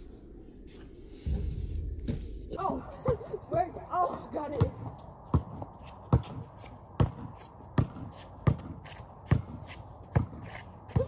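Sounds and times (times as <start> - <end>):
basketball bouncing on concrete: 3.0 - 11.0.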